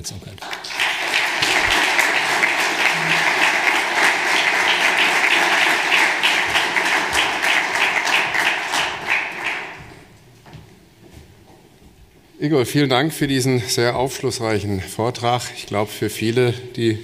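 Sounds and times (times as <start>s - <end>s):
audience applauding: 0.4s - 10.1s.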